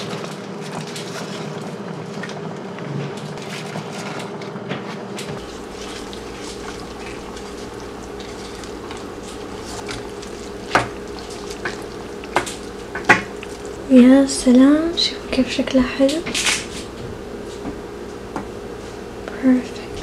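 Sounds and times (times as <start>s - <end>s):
wooden spoon stirring: 0.0s - 2.4s, 3.2s - 19.0s
steady hum: 0.0s - 20.0s
soup bubbling in pot: 5.3s - 14.6s.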